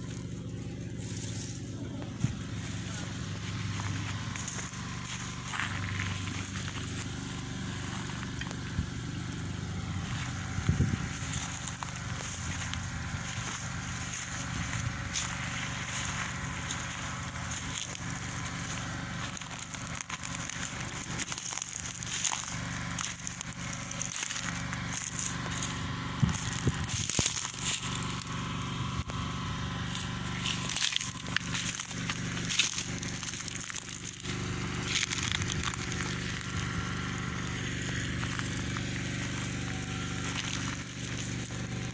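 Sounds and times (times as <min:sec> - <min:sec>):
footsteps crunching dry grass: 0:00.0 - 0:41.9
generator engine humming: 0:00.0 - 0:41.9.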